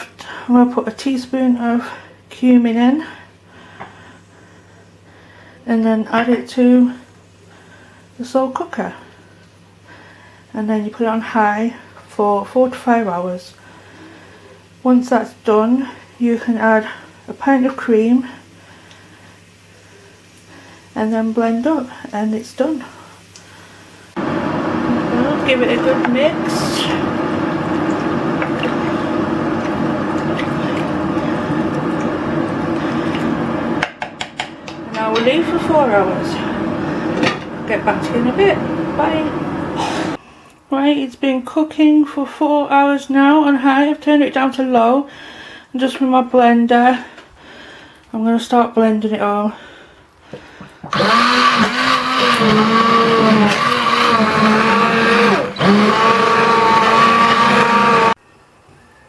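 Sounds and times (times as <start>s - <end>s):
kettle rushing rumble: 13.2s - 40.2s, 50.2s - 58.2s
stick blender motor whining: 24.2s - 33.8s, 50.9s - 58.2s
wooden spoon knocking: 33.8s - 35.4s.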